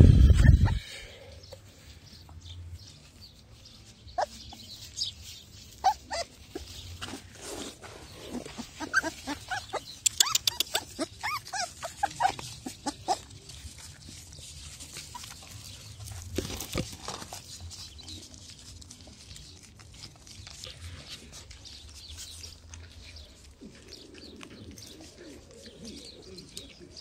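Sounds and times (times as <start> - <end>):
puppies whimpering and yelping: 0.0 - 1.0, 3.9 - 16.4.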